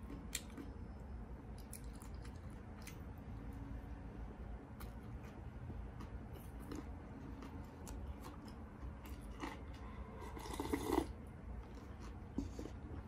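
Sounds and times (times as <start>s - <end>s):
faint chewing: 1.5s - 3.2s, 4.8s - 13.0s
slurping broth: 10.2s - 11.2s.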